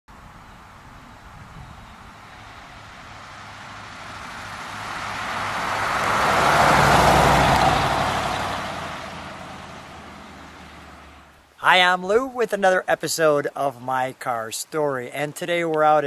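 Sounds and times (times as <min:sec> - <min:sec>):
car engine hum driving past: 0:00.2 - 0:11.4.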